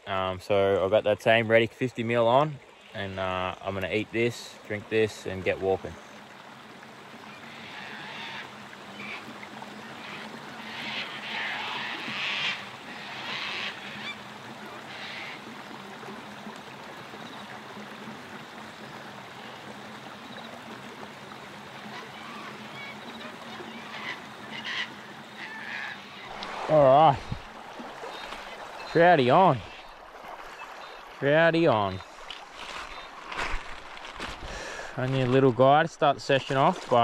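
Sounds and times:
river water rushing: 0:02.2 - 0:37.0
waterfowl calls: 0:07.2 - 0:15.5, 0:21.8 - 0:33.6.

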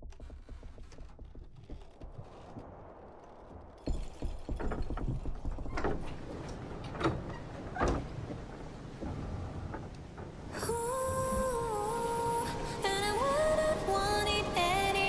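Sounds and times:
wooden doors knocking and clunking: 0:00.0 - 0:03.0, 0:03.6 - 0:10.6
low rumble: 0:00.1 - 0:12.0.

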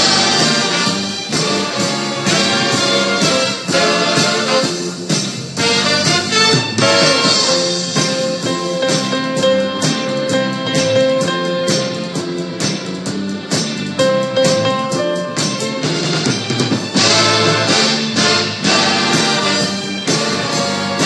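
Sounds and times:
drums: 0:00.0 - 0:21.0
orchestra and band playing: 0:00.0 - 0:21.0
piano: 0:00.0 - 0:21.0
plucked strings: 0:14.0 - 0:17.6.

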